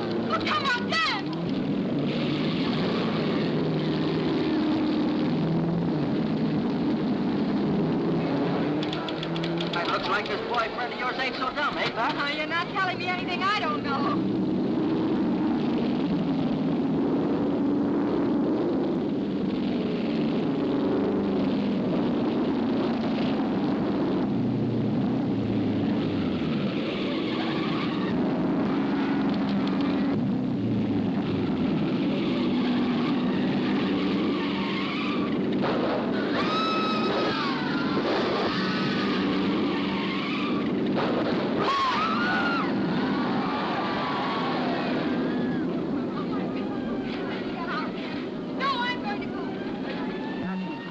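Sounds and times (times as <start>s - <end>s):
racing car engines: 0.0s - 50.9s
high wavering squeal: 36.2s - 40.6s, 49.1s - 50.9s.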